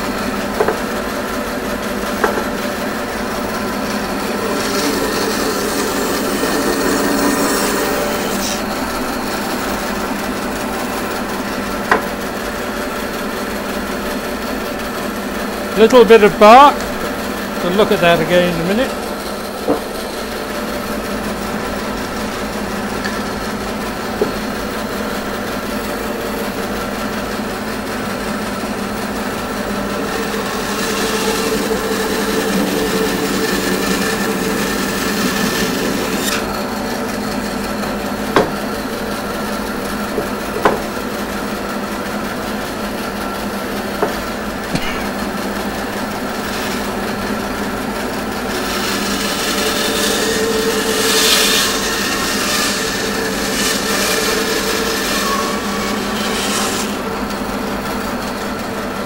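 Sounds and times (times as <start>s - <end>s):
bandsaw cutting wood: 0.0s - 58.8s
wood knocking on table: 0.6s - 0.9s, 2.2s - 2.6s, 11.9s - 12.1s, 19.6s - 19.9s, 38.4s - 38.6s, 40.2s - 40.9s, 44.0s - 45.2s.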